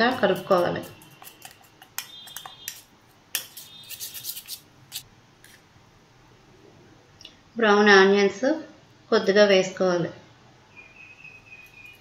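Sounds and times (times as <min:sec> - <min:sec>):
spoon scraping a metal pot: 0:00.0 - 0:05.0.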